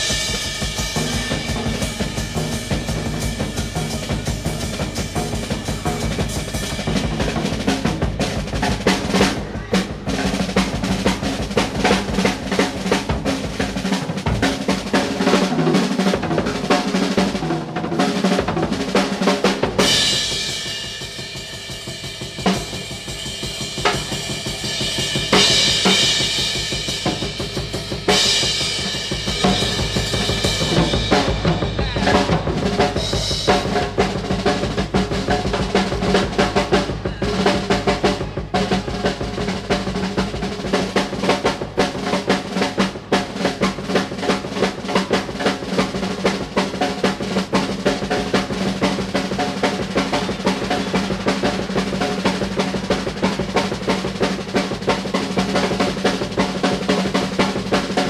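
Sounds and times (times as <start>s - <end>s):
bass drum: 0.0s - 14.9s, 22.4s - 41.7s
cymbals: 0.0s - 17.4s, 18.0s - 58.0s
snare drum rolls: 0.0s - 21.3s, 21.9s - 58.0s.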